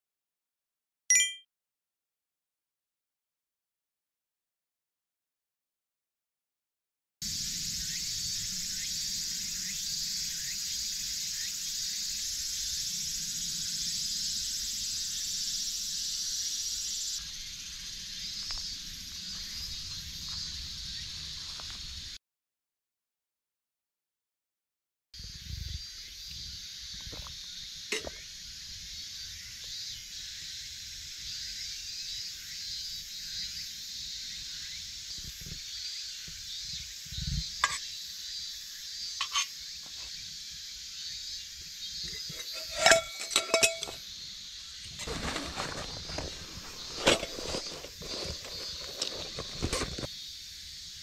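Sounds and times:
insects droning: 0:07.2 - 0:22.2, 0:25.2 - 0:51.0
metal stove parts clattering: 0:42.1 - 0:44.0, 0:45.0 - 0:50.1
fabric bag rustling: 0:45.0 - 0:50.1.

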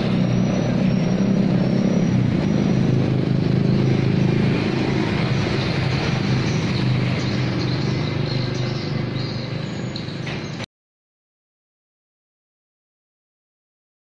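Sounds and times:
vehicle engine running: 0:00.0 - 0:10.6
road traffic: 0:00.0 - 0:10.7.

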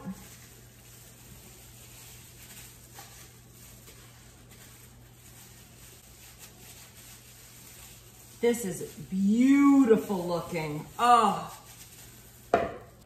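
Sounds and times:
gloved hand handling food: 0:00.0 - 0:13.0.

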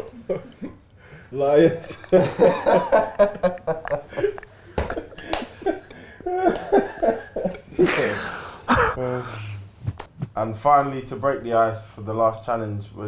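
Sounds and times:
men laughing: 0:00.0 - 0:00.8, 0:01.5 - 0:09.5.

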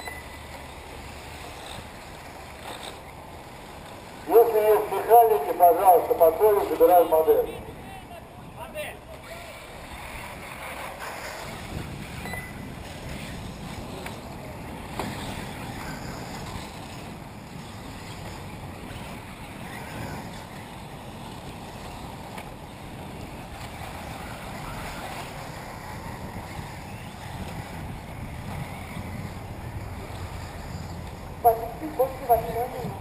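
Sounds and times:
faint outdoor ambience: 0:00.0 - 0:33.0
wind noise on microphone: 0:11.2 - 0:33.0.

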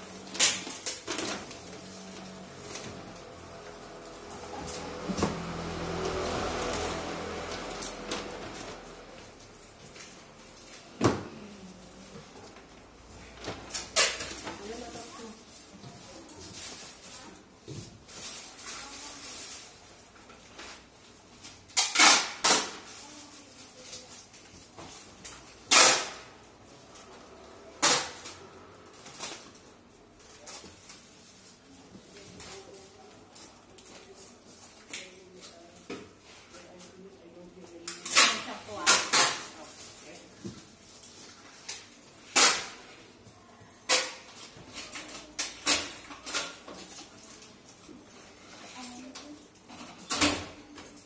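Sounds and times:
plastic bags rustling: 0:00.0 - 0:21.8, 0:22.7 - 0:49.8
cloth and bags rustling: 0:14.3 - 0:21.7.

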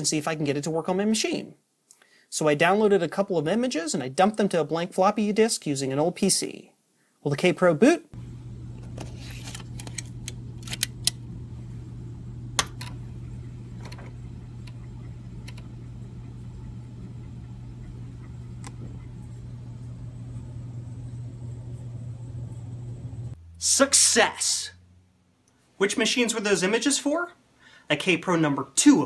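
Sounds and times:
faint disk reading clicks: 0:08.2 - 0:11.3, 0:12.5 - 0:20.3
computer and drive humming: 0:08.2 - 0:25.3.

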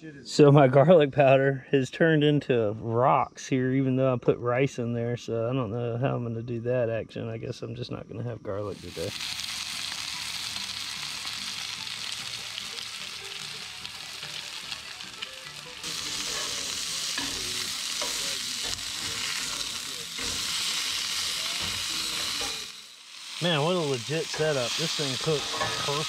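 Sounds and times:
chicken sizzling in oil: 0:08.7 - 0:26.0.

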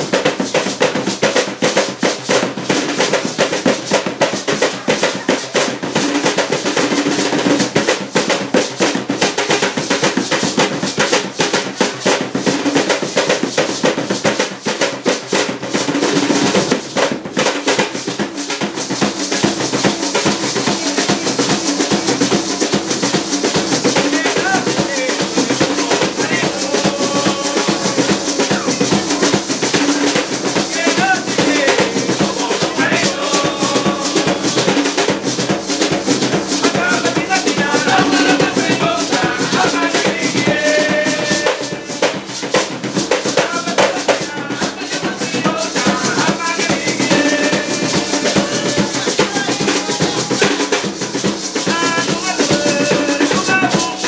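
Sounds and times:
hand drums playing rhythm: 0:00.0 - 0:54.0
maracas shaking: 0:00.0 - 0:54.0
men singing: 0:02.6 - 0:08.0, 0:19.0 - 0:54.0.

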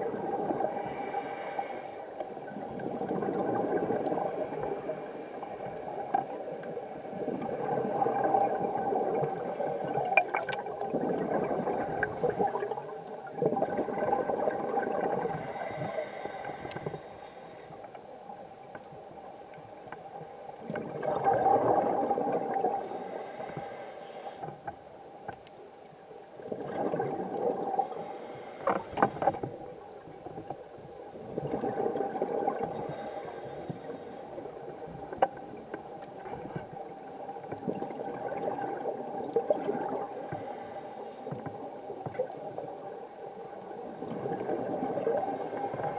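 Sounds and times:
faint steady hum: 0:00.0 - 0:45.9
regulator inhale hiss: 0:00.6 - 0:03.3, 0:04.0 - 0:10.5, 0:11.8 - 0:13.2, 0:15.2 - 0:18.1, 0:22.8 - 0:24.8, 0:27.7 - 0:29.6, 0:32.6 - 0:34.7, 0:39.8 - 0:41.9, 0:45.0 - 0:45.9.

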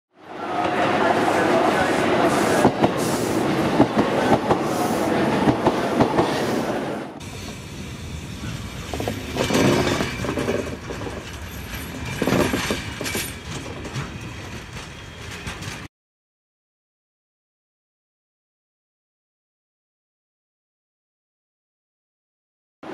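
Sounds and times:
electric train rolling by: 0:00.2 - 0:15.9
wheels clicking over rail joints: 0:08.4 - 0:15.9.

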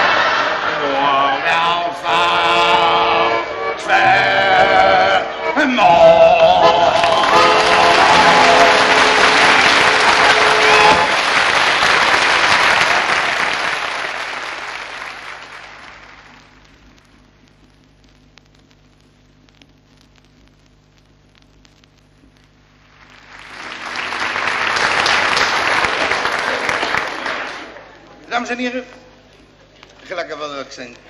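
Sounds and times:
faint low hum: 0:00.0 - 0:31.0
audience applause: 0:06.8 - 0:16.6, 0:22.8 - 0:28.0
small clicks: 0:16.4 - 0:22.6.

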